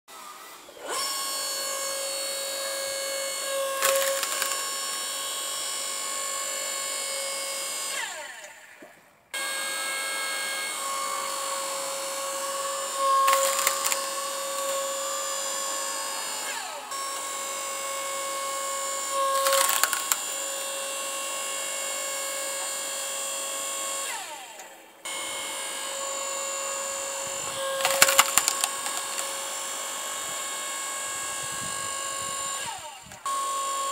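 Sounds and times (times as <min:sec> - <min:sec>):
log splitter motor whining: 0:00.2 - 0:33.9
wood cracking and splitting: 0:03.8 - 0:04.8, 0:13.0 - 0:15.0, 0:19.3 - 0:20.3, 0:27.6 - 0:29.4.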